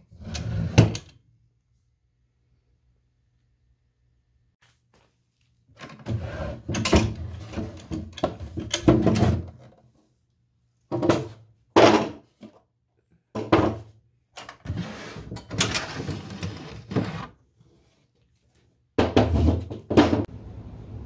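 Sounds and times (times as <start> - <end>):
wooden drawer scraping: 5.9 - 9.6, 14.6 - 17.4.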